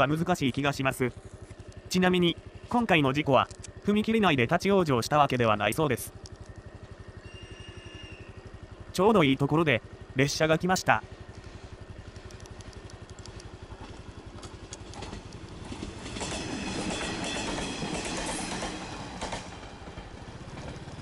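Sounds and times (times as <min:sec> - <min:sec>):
motorcycle engine idling: 0:00.0 - 0:21.0
train wheels clacking over rail joints: 0:13.8 - 0:21.0.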